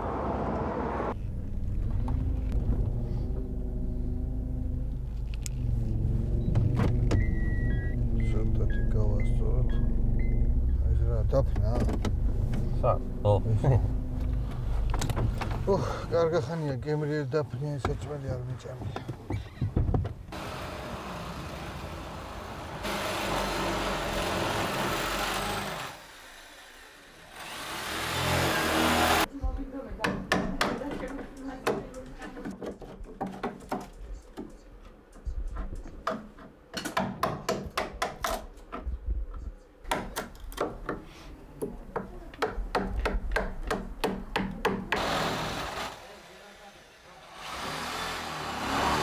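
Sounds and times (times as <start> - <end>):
hammer tapping chisel into wood: 41.9 - 45.0.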